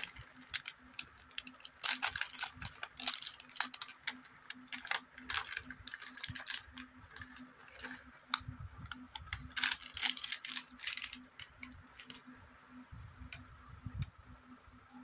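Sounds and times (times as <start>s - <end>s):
plastic wrapper crinkling: 0.0s - 12.2s.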